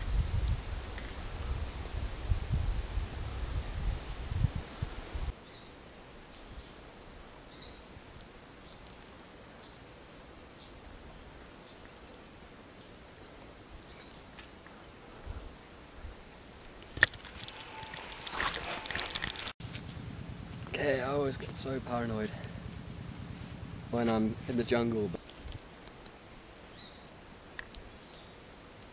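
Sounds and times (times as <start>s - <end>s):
insects droning: 0.0s - 28.9s
rustling: 16.9s - 20.0s
chirping pulse: 17.0s - 19.5s.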